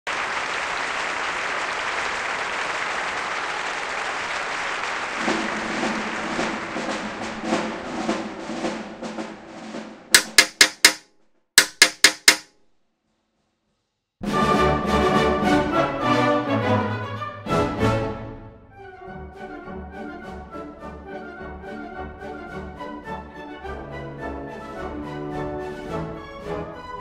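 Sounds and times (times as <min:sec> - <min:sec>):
applause: 0:00.0 - 0:08.2
music: 0:05.1 - 0:10.6, 0:14.2 - 0:27.0
sharp percussive hits: 0:10.1 - 0:12.6.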